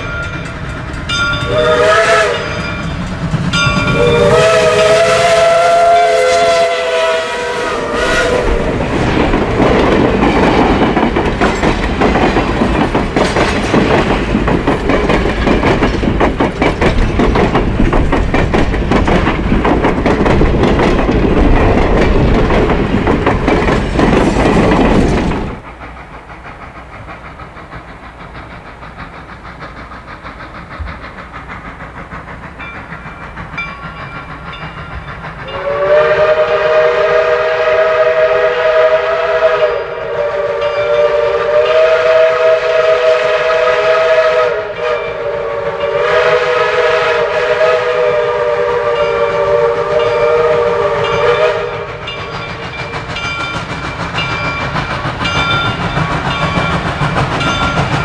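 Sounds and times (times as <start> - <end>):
train wheels clattering over rail joints: 0.0 - 7.0, 7.7 - 39.4, 40.3 - 58.0
steam locomotive whistle chord: 1.4 - 2.9, 3.5 - 8.6, 35.4 - 52.7.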